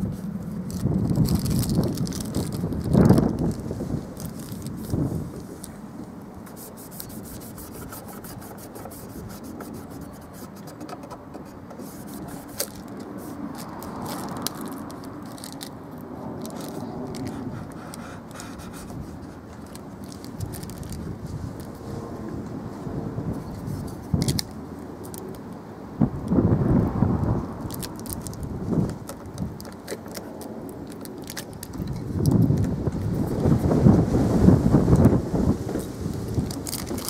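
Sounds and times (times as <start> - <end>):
fingers rubbing tape onto wood: 6.4 - 15.6, 16.4 - 20.9
backing paper peeling off tape: 6.4 - 15.7.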